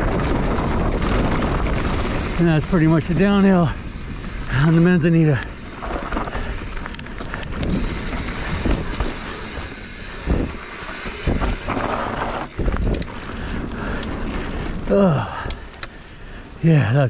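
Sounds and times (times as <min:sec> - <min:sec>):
wind buffeting microphone: 0:00.0 - 0:15.9
bike rattling: 0:00.0 - 0:16.6
bike tyres rolling on dirt: 0:00.0 - 0:17.0.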